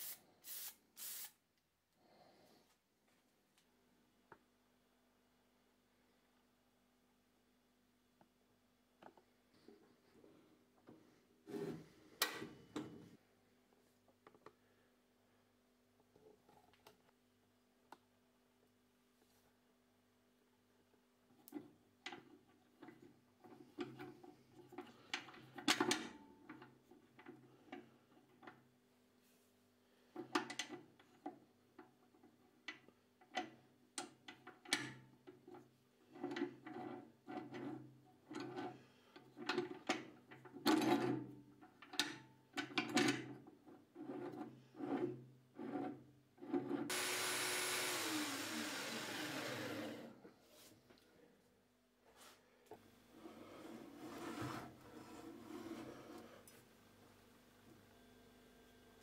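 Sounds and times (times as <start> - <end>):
band saw motor whining: 46.9 - 50.2.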